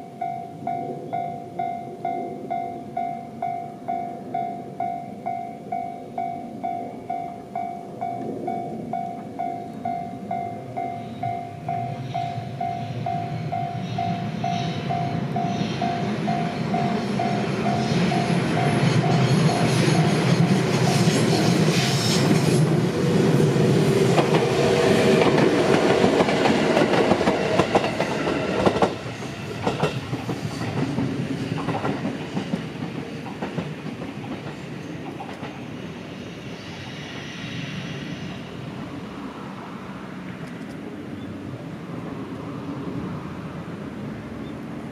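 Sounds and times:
level-crossing warning bell: 0.0s - 22.0s
electric train passing on rails: 0.0s - 44.9s.

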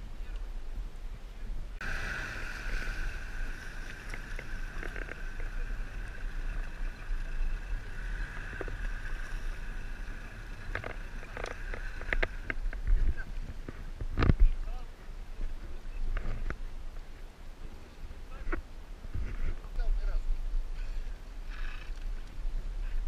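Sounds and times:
boat motor whine: 1.8s - 12.8s.

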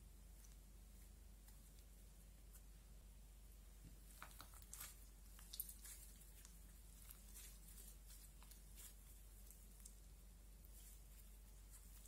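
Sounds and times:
slime squishing and crackling: 4.0s - 12.0s.

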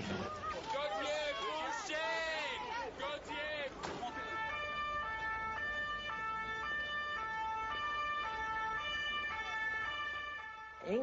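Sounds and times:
two-tone siren: 4.0s - 11.0s.

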